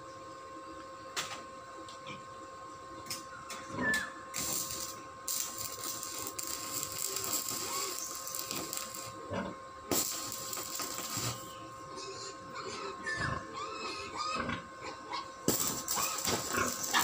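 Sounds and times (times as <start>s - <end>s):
faint high hum: 0.0s - 17.0s
arc welding crackling and sizzling: 4.3s - 12.8s, 15.4s - 17.0s.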